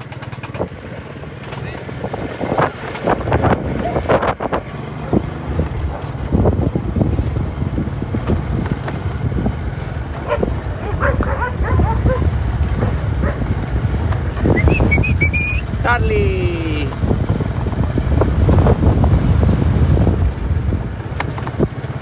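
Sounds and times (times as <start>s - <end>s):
motorbike running: 0.0s - 22.0s
wind noise on microphone: 1.6s - 22.0s
dogs barking: 10.2s - 13.6s
short rising whistle: 14.5s - 15.7s.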